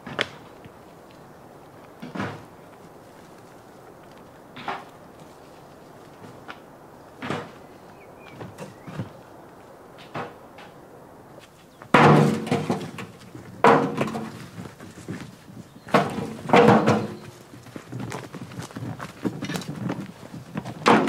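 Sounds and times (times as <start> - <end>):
metal wheelbarrow clanking: 11.9 - 15.2, 15.9 - 17.4.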